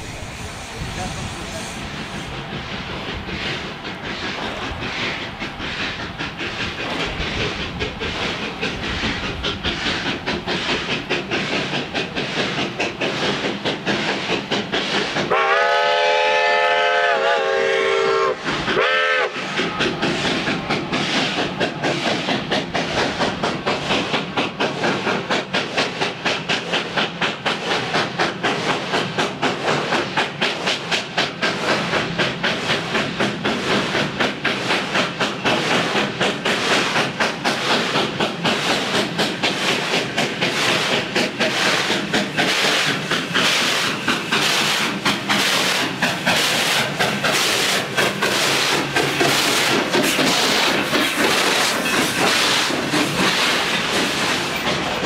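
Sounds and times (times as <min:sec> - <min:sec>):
rhythmic beat of moving train: 0:00.0 - 0:55.0
steam locomotive chime whistle: 0:15.3 - 0:19.6.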